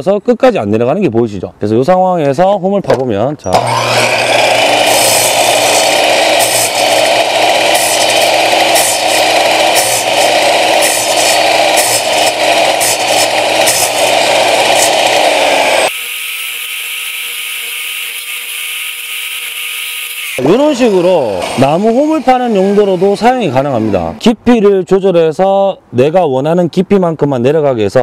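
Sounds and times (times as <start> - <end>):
saw motor whine: 3.5 - 24.1
miter saw cutting wood: 3.5 - 24.2.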